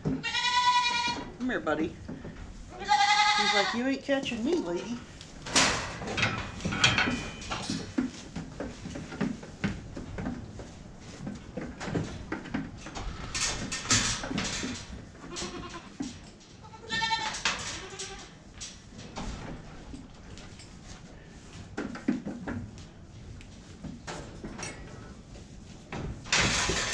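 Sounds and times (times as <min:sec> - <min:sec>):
goat bleating: 0:00.2 - 0:01.2, 0:02.7 - 0:03.8, 0:16.6 - 0:18.3
goats knocking metal pen panels: 0:05.4 - 0:10.6, 0:11.2 - 0:20.2, 0:26.0 - 0:26.9.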